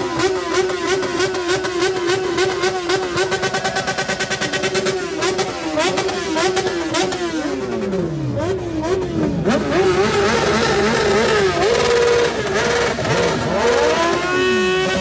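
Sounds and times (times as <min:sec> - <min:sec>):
motorcycle engines revving: 0:00.0 - 0:15.0.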